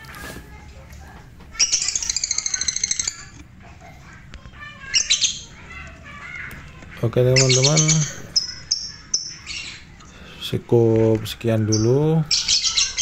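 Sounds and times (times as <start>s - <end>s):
bird chattering squawks: 1.6s - 3.4s, 4.8s - 5.6s, 7.3s - 10.0s, 11.7s - 13.0s.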